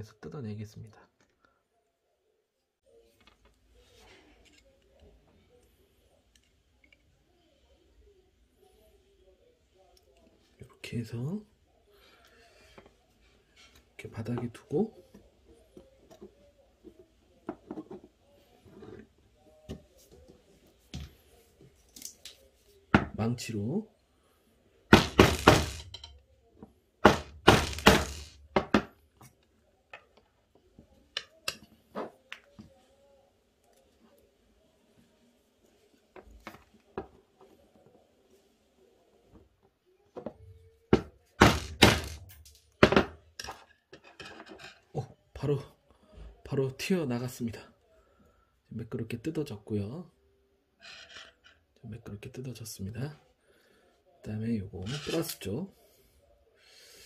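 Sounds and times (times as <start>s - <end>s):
hammer striking screwdriver: 25.0s - 26.1s, 27.0s - 28.4s.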